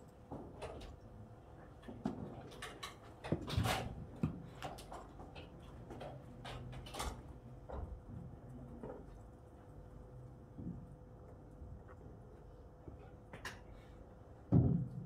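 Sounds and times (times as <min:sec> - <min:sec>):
faint steady hum: 0:06.0 - 0:15.0.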